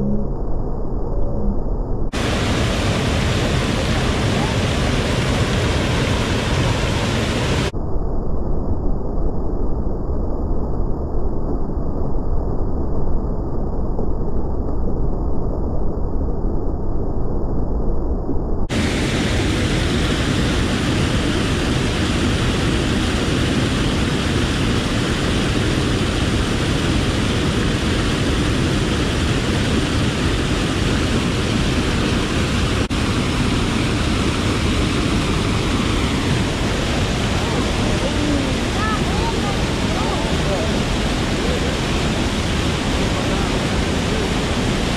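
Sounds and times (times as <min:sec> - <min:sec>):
waterfall roaring: 0:02.2 - 0:07.7, 0:18.7 - 0:44.9.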